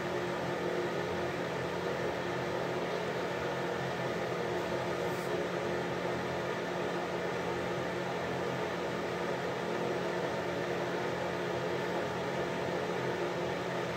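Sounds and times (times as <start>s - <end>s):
exhaust fan air rush: 0.0s - 13.9s.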